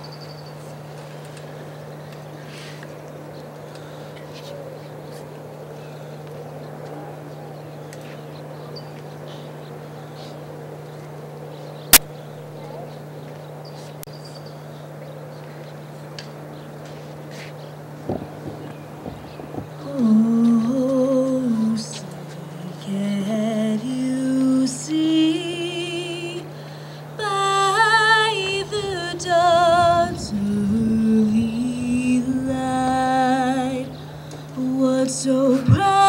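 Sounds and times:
steady low hum: 0.0s - 36.0s
crowd murmur: 0.5s - 14.0s.

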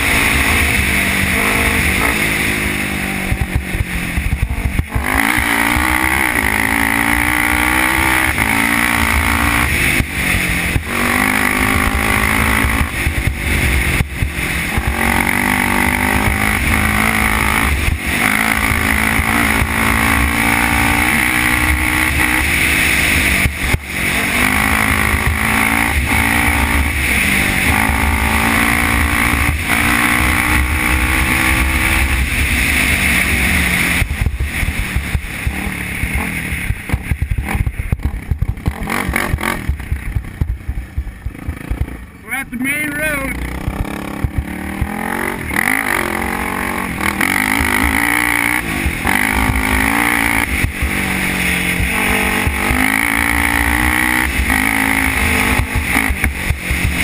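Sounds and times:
quad engine revving: 0.0s - 57.0s.

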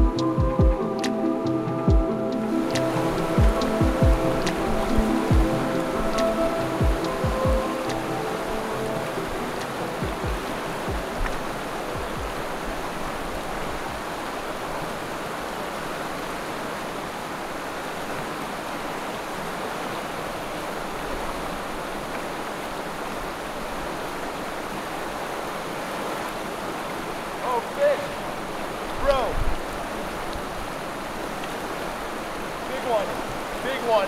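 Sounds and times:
low thumps: 0.0s - 1.2s, 1.8s - 7.8s, 10.0s - 11.4s
river rushing over rocks: 0.0s - 34.0s.

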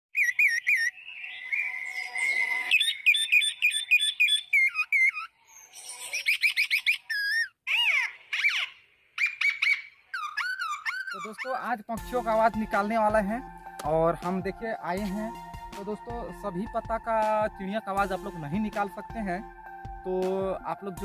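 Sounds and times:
leaf whistle imitating birdsong: 0.2s - 11.6s.

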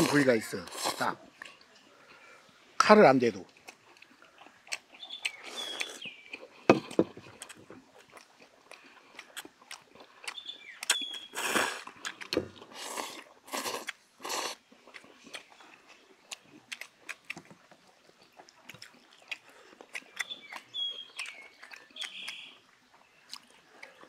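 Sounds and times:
people slurping noodles: 0.0s - 1.4s, 5.3s - 7.4s, 11.3s - 14.6s
chewing and smacking: 1.3s - 2.3s, 3.3s - 24.0s.

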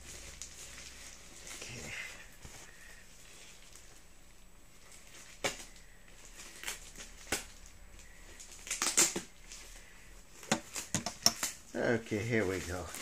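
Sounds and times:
bubble wrap crinkling: 0.0s - 13.0s.

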